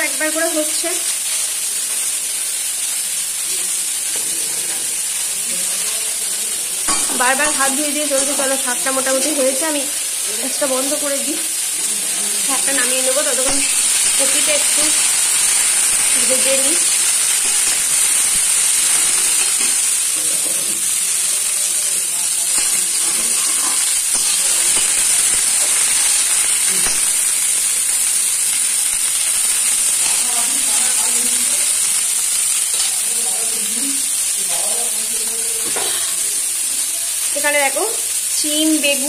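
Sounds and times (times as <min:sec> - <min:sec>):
vegetables sizzling in oil: 0:00.0 - 0:39.0
metal spatula stirring: 0:22.5 - 0:26.2.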